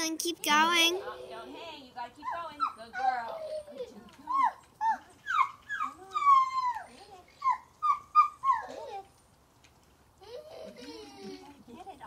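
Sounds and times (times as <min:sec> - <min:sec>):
dog whining: 0:02.6 - 0:09.0.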